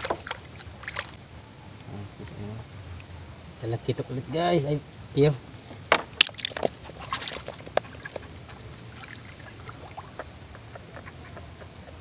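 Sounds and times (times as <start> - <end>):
fishing net and fish handled: 0.0 - 1.2, 5.9 - 10.2
crickets trilling: 0.0 - 12.0.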